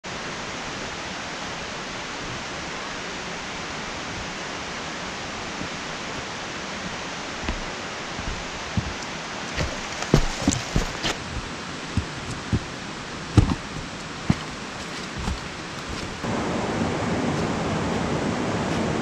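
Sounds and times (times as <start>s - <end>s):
rushing water: 0.1s - 19.0s
soft footsteps on trail: 3.3s - 16.3s.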